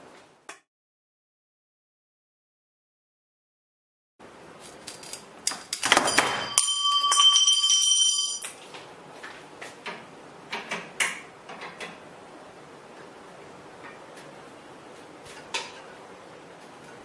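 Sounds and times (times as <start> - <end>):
metal tube ringing: 6.0 - 8.5.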